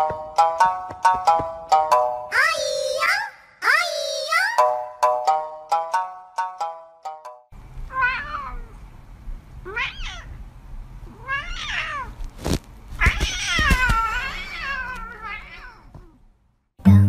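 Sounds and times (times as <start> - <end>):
cat meowing: 7.9 - 8.8, 9.6 - 10.4, 11.1 - 12.2, 13.0 - 16.2.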